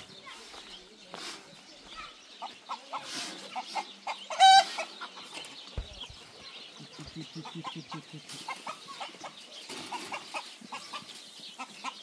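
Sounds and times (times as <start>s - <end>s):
chickens clucking: 0.0s - 12.0s
chicken squawk: 2.9s - 4.9s.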